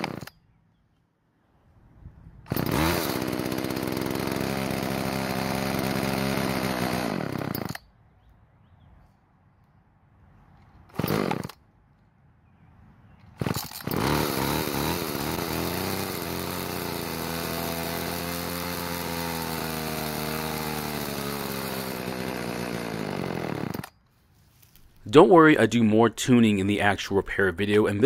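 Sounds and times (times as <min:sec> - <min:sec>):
chainsaw engine running: 0:00.0 - 0:00.3, 0:02.5 - 0:07.8, 0:10.9 - 0:11.6, 0:13.4 - 0:24.0.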